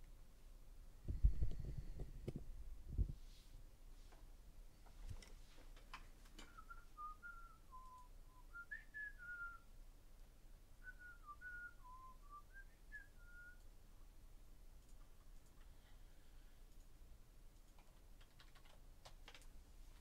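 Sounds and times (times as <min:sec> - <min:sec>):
person whistling a tune: 0:06.5 - 0:09.6, 0:10.8 - 0:13.6.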